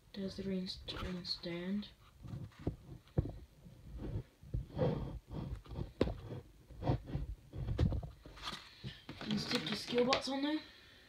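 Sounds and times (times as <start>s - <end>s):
breathing close to microphone: 3.1s - 9.2s.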